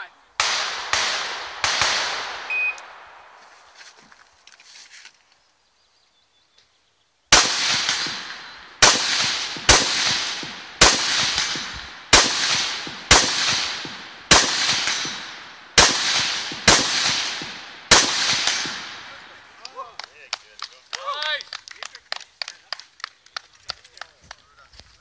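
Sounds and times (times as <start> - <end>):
rifle shots: 0.4 - 3.2, 7.3 - 19.4
gunshot echo: 0.4 - 3.3, 7.3 - 19.4.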